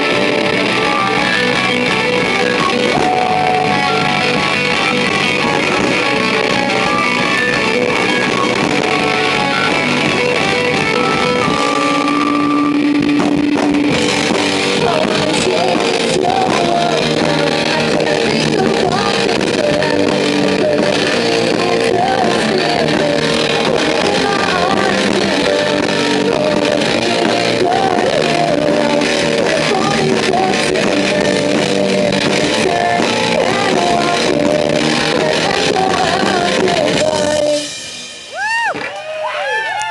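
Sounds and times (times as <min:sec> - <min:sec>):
rock band playing: 0:00.0 - 0:39.9
person singing: 0:14.6 - 0:37.8.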